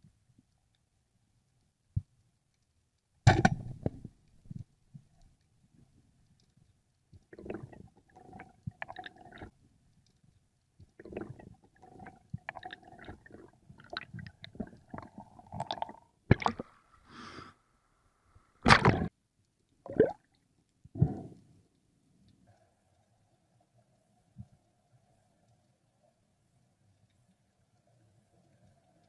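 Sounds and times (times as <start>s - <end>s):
underwater crackling and clicking: 0.1s - 16.8s, 18.6s - 25.9s
short gurgling bursts: 7.3s - 9.5s, 11.0s - 16.8s, 19.8s - 20.2s.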